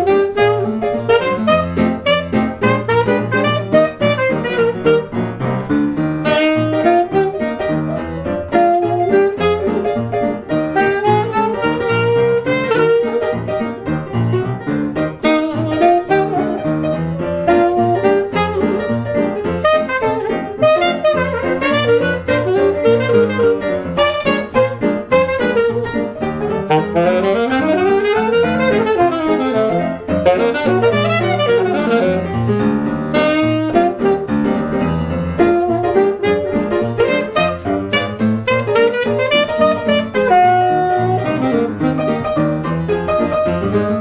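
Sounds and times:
saxophone melody: 0.0 - 44.0
stride piano accompaniment: 0.0 - 44.0.

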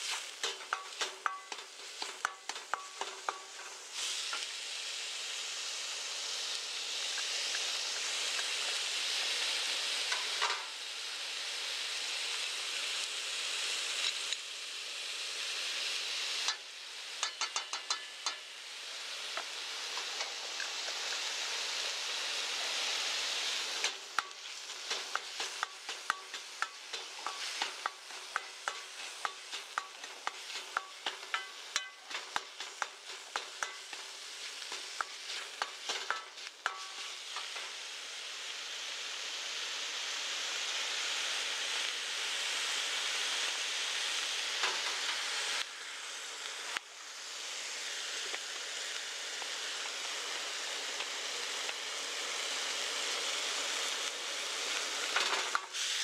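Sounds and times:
spatula scraping and clacking on wok: 0.0 - 4.5, 10.1 - 10.7, 16.4 - 18.5, 22.8 - 37.8, 55.0 - 56.0
minced meat sizzling in a wok: 0.0 - 56.0.

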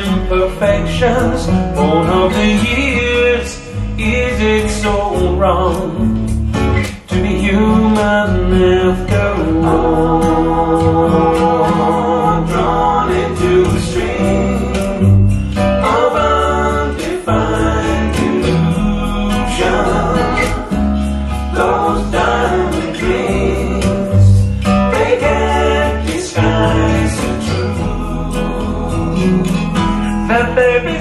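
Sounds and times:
song with singing and band: 0.0 - 31.0.

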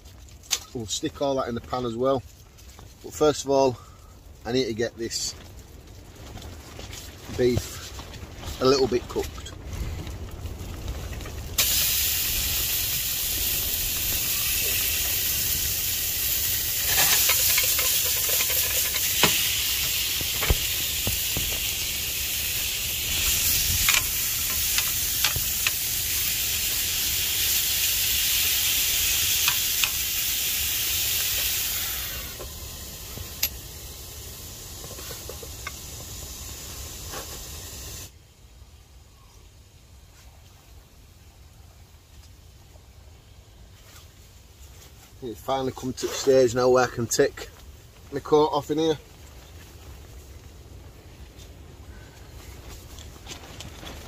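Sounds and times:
meat sizzling in a pan: 11.6 - 38.1.

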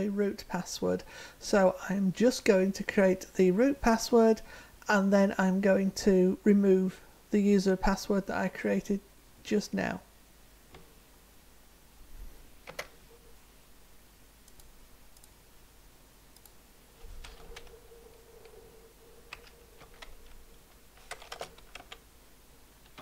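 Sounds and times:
keyboard keystrokes: 21.0 - 22.0.

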